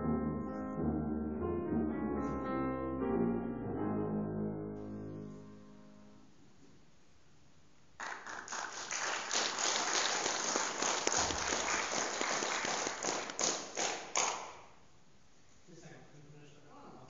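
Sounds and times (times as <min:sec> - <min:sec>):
audience applauding: 0:08.0 - 0:14.6.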